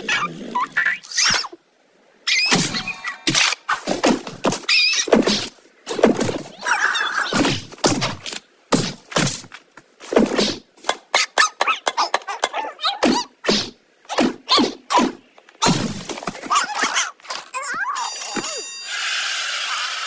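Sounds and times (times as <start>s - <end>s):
cartoon bird squawking: 2.3s - 3.3s, 11.1s - 13.3s.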